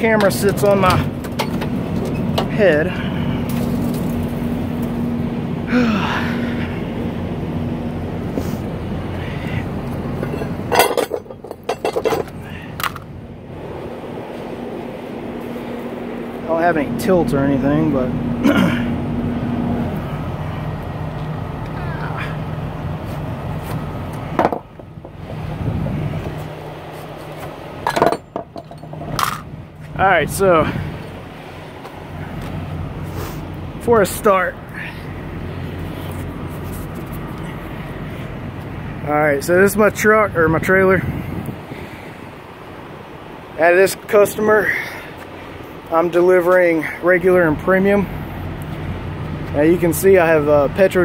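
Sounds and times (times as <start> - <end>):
diesel engine idling: 0.0 - 51.0
metallic clanks and knocks: 0.2 - 2.6, 10.2 - 13.0, 27.8 - 29.5.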